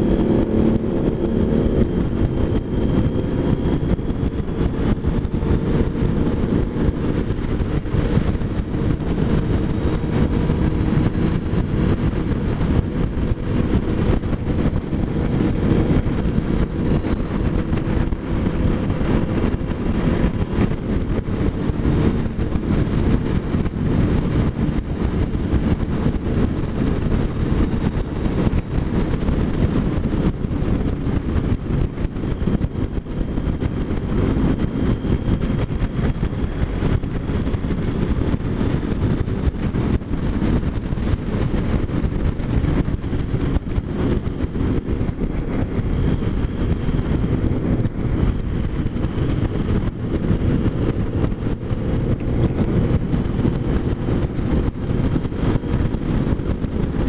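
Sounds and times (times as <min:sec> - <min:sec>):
motorcycle engine running: 0:00.0 - 0:57.0
wind buffeting microphone: 0:00.0 - 0:57.0.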